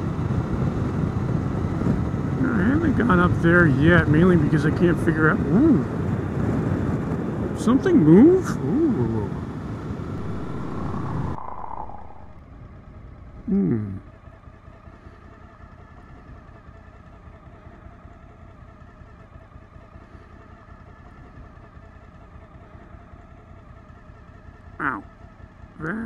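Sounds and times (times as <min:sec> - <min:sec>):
short loud sound falling in pitch: 0:10.1 - 0:12.4
motorcycle engine running: 0:13.2 - 0:26.0.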